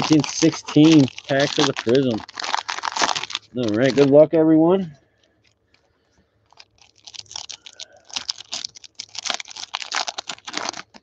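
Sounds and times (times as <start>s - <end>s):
wrapper tearing and crinkling: 0.0s - 4.2s, 6.5s - 11.0s.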